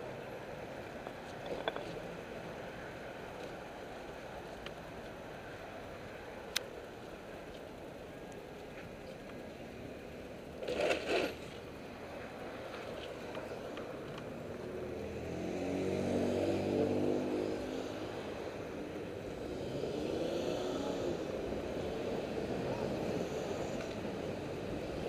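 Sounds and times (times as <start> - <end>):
traffic noise: 0.0 - 25.0
passing vehicle engine drone: 14.3 - 25.0.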